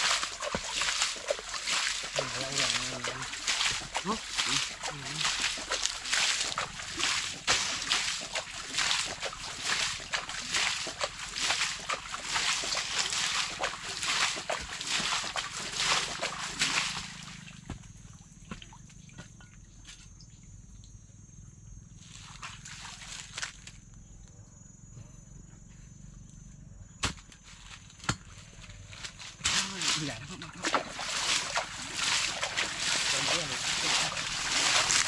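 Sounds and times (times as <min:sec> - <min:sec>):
water sloshing and splashing: 0:00.0 - 0:19.5, 0:22.1 - 0:23.7, 0:28.9 - 0:35.0
faint low hum: 0:00.0 - 0:35.0.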